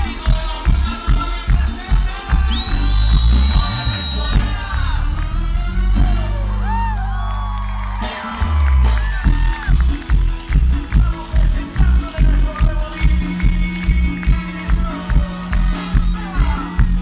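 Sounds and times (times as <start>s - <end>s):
live dance band: 0.0s - 17.0s
crowd whooping and cheering: 2.2s - 10.8s.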